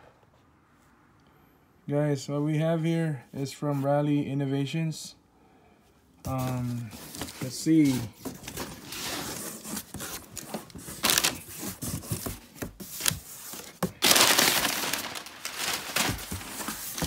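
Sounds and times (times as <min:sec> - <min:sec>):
packing paper rustling: 0:06.3 - 0:17.0
cardboard box being opened: 0:06.5 - 0:17.0.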